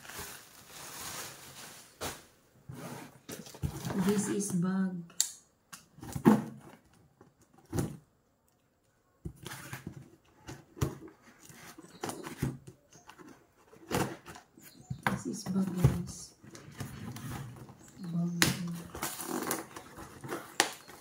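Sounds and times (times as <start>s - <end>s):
cardboard parcel handling: 0.0s - 4.4s, 15.4s - 21.0s.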